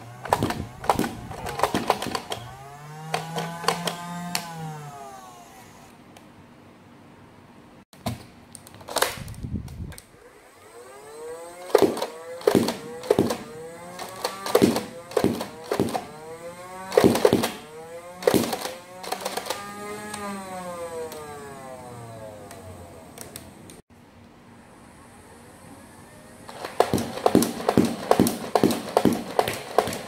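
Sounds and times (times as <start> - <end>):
toy blaster motor whine: 0.0 - 5.9, 10.4 - 22.9.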